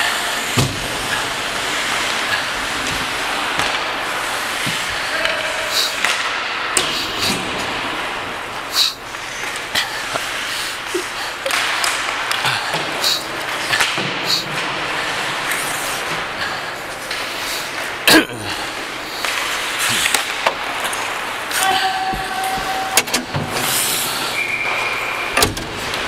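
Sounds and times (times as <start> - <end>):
skates scraping on ice: 0.0 - 26.0
sticks and puck clacking: 0.0 - 26.0
puck knocking against boards: 1.8 - 5.4, 11.5 - 14.8, 19.2 - 24.8.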